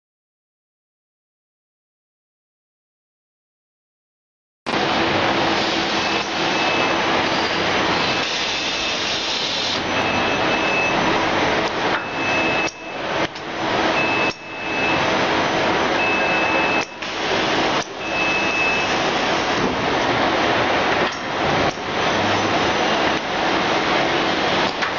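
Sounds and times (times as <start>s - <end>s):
loud rushing machine noise: 4.7s - 16.4s, 17.0s - 24.9s.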